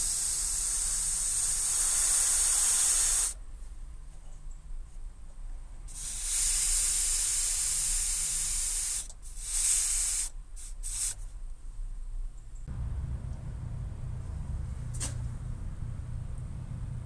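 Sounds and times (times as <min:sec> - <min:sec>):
compressed air hissing from valve: 0:00.0 - 0:03.4, 0:05.9 - 0:11.2.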